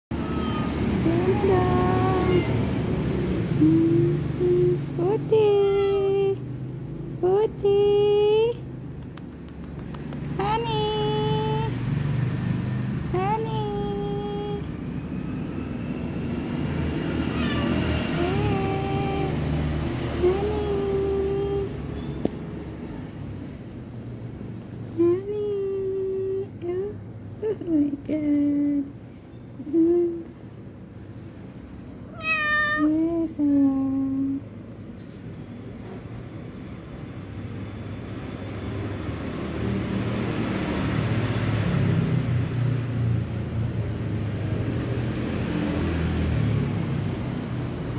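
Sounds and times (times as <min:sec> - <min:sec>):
cat meowing: 0:00.1 - 0:00.9, 0:01.9 - 0:02.6, 0:05.6 - 0:06.0, 0:17.3 - 0:17.8, 0:32.1 - 0:33.0.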